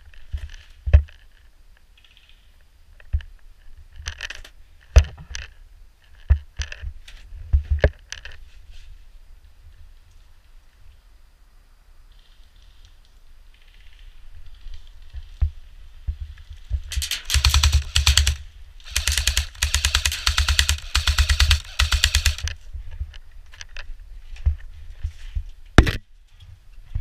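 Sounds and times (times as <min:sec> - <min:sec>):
airsoft rifle bursts: 0:16.9 - 0:22.6.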